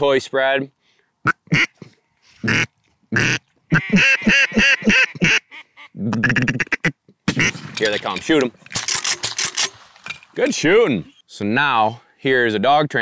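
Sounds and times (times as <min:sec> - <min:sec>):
duck call quacks: 0:01.2 - 0:01.8, 0:02.4 - 0:07.5.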